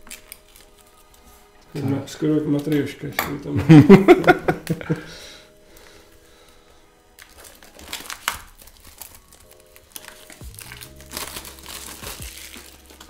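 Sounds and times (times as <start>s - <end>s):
cardboard packaging crinkling: 0.0s - 2.0s, 7.1s - 13.0s
soft background music: 0.0s - 13.0s.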